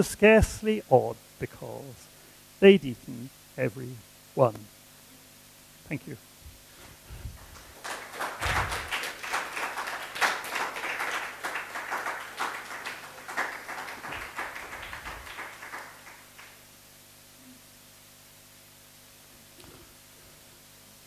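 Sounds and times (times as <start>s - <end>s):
audience applauding: 7.4s - 16.6s.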